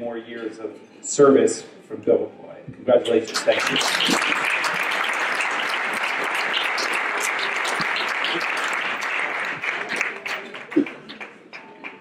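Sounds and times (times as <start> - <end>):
audience applauding: 3.1 - 12.0.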